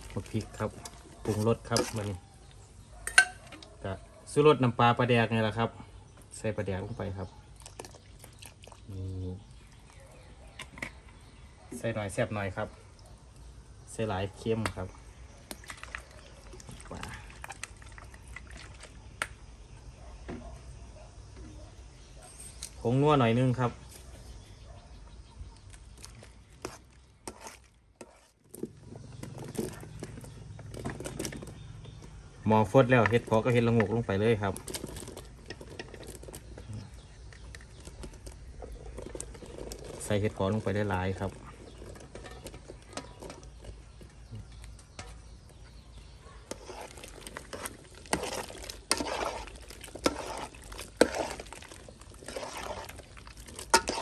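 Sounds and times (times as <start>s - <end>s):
liquid sloshing: 7.6s - 8.9s, 15.6s - 19.1s, 46.4s - 54.0s.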